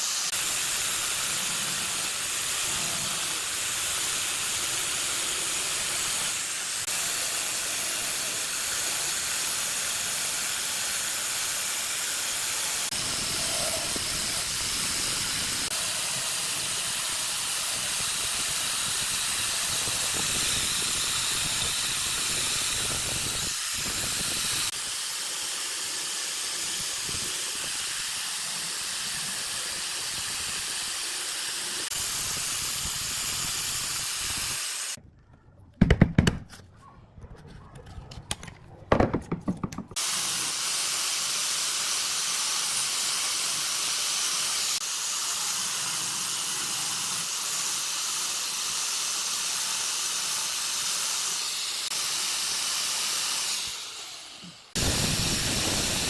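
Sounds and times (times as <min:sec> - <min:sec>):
spindle sanding drum running: 0:00.0 - 0:34.6
wood sanding hiss: 0:00.0 - 0:35.0, 0:39.9 - 0:56.0.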